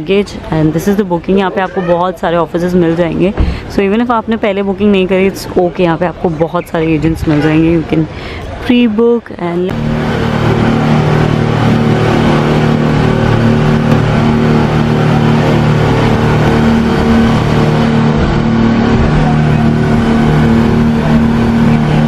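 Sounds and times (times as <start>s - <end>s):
churned water: 0.0s - 22.0s
outboard motors droning: 0.0s - 22.0s
wind rushing: 9.7s - 22.0s.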